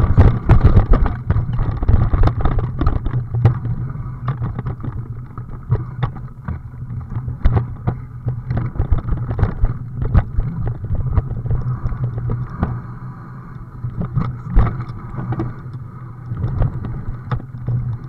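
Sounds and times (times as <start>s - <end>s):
vehicle rumbling on rough trail: 0.0s - 18.0s
wind buffeting microphone: 0.0s - 18.0s.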